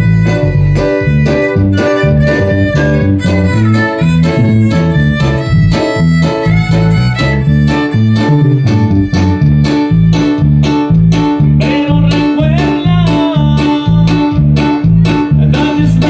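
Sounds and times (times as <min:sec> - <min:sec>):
violin melody: 0:00.0 - 0:11.1
bass line: 0:00.0 - 0:16.0.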